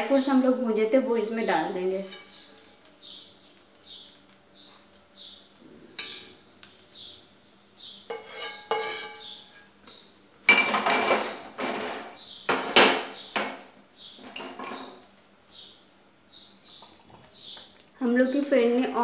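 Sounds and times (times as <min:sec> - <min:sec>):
spatula scraping pan: 0:01.9 - 0:02.6, 0:08.0 - 0:09.8
spatula clinking against pan: 0:08.1 - 0:09.7.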